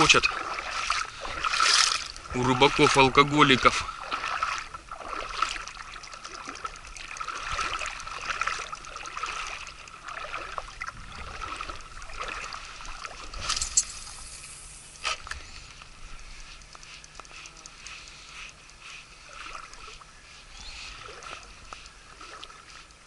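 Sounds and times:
river water lapping: 0.0 - 23.0
small clicks: 16.5 - 18.8.

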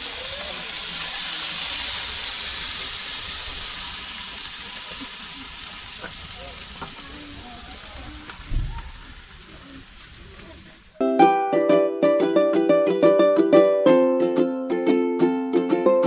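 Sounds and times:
fat sizzling on a hot grill: 0.0 - 11.0.

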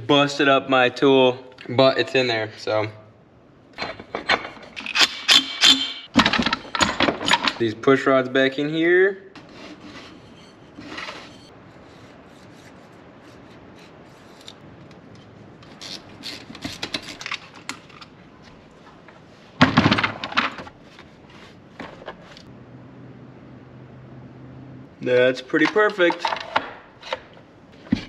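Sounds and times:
hand tools clicking and scraping: 3.8 - 7.6, 12.1 - 18.2.

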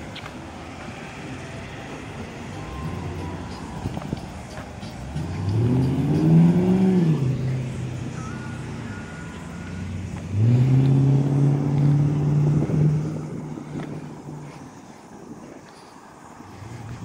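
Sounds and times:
vehicles accelerating past: 0.0 - 17.0.

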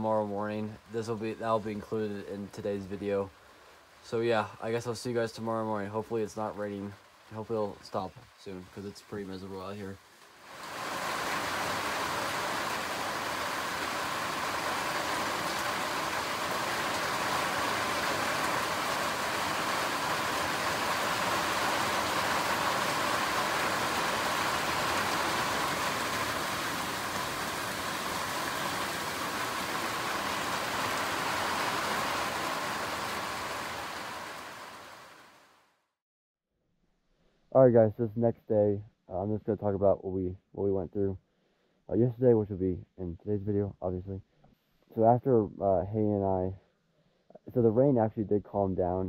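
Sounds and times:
rain falling on forest: 0.0 - 35.8.

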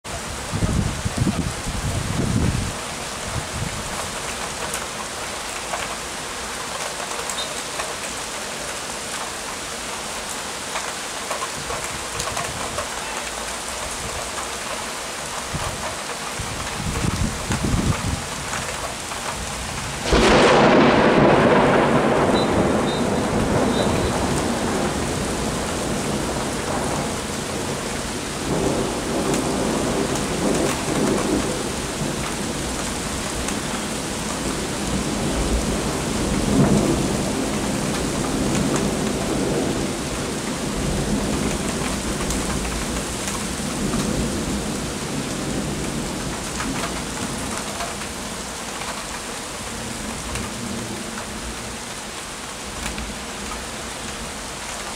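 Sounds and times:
steady rain falling: 0.0 - 54.9
thunder rumbling: 15.4 - 47.8.

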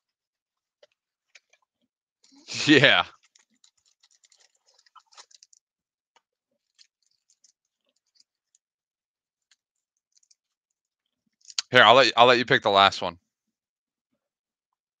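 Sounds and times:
foil packs crinkling: 3.1 - 5.6.

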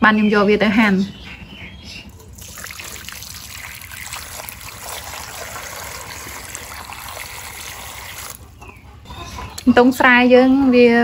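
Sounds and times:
water pouring into metal bowl: 2.4 - 8.4.

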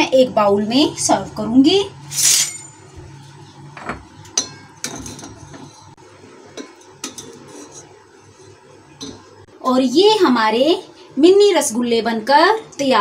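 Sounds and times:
spoon clinking against pot and bowl: 4.2 - 5.9, 6.5 - 7.8, 9.0 - 9.3.

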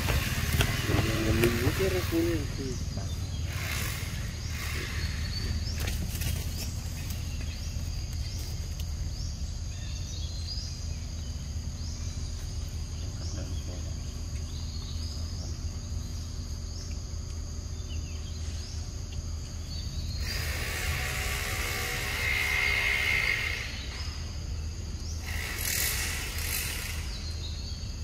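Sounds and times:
high-pitched insect drone: 0.0 - 6.6, 19.7 - 28.0.

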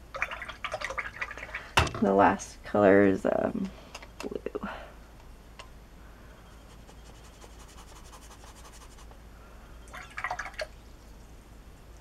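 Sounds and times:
brush scratching on paper: 6.5 - 9.1.

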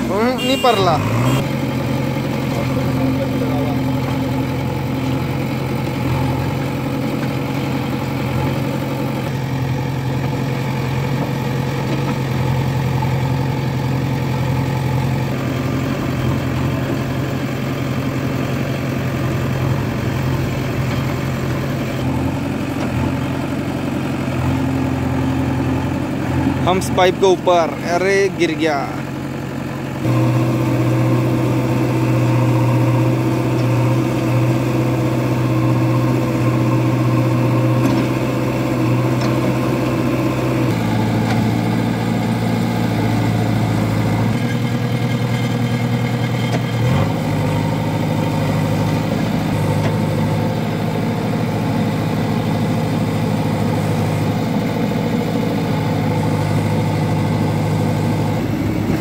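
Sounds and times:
diesel engine running: 0.0 - 59.0.

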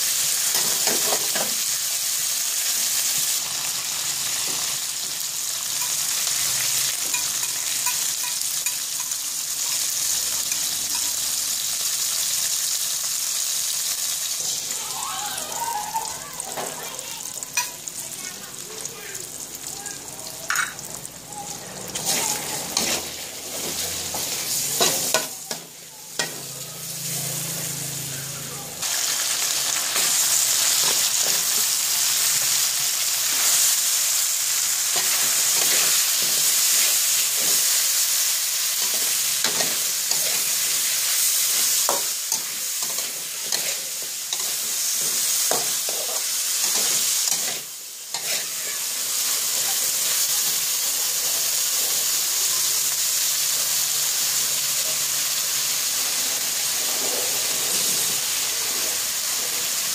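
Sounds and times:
food sizzling in hot oil: 0.0 - 59.9
spatula scraping and knocking wok: 21.9 - 27.8, 34.7 - 52.0.

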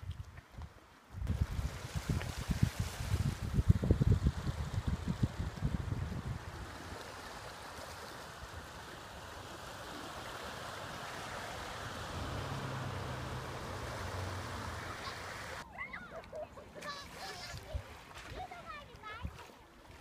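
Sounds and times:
wind buffeting microphone: 0.1 - 7.1
sea washing on rocky shore: 1.3 - 15.6.

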